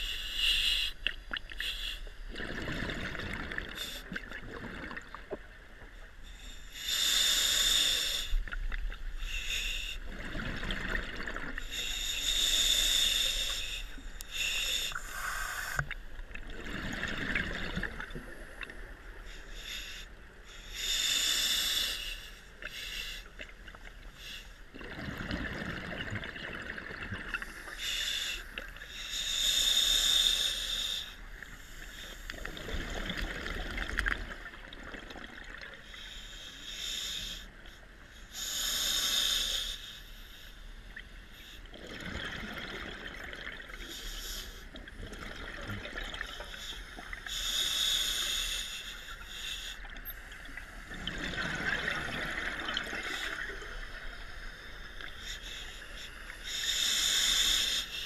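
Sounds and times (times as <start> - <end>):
hissing regulator inhale: 0.0 - 2.2, 6.2 - 8.6, 9.2 - 10.0, 11.6 - 16.0, 18.4 - 23.4, 24.0 - 24.7, 27.3 - 32.7, 35.8 - 41.7, 43.7 - 44.8, 46.2 - 58.0
bubbling exhale underwater: 2.3 - 5.2.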